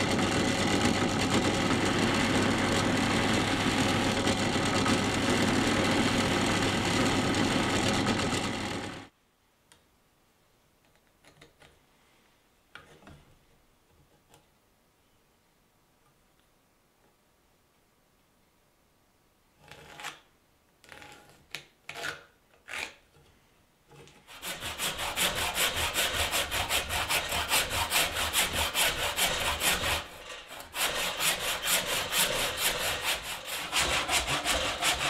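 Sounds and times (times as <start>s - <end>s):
drill press motor hum: 0.0s - 9.1s.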